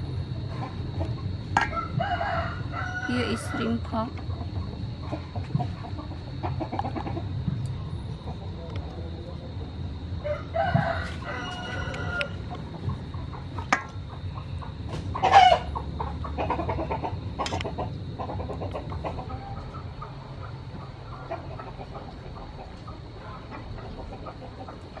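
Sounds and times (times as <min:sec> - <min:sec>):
chickens clucking: 0:00.3 - 0:25.0
rooster crowing: 0:01.6 - 0:04.1, 0:10.2 - 0:12.6, 0:15.2 - 0:15.8.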